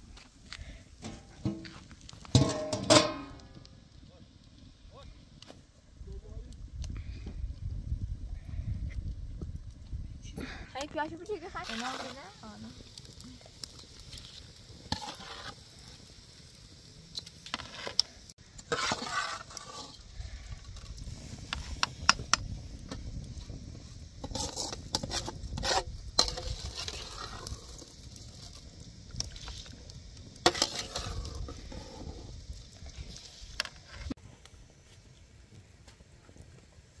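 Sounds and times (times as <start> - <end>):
metal spoon scraping bowl: 18.6 - 20.0.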